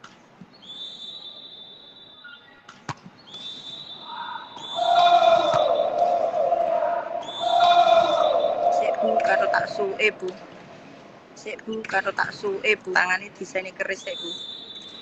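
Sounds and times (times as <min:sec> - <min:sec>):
spectators shouting and cheering: 0:04.1 - 0:10.5
volleyball strike: 0:04.6 - 0:09.0
steady high-pitched tone: 0:04.7 - 0:10.4.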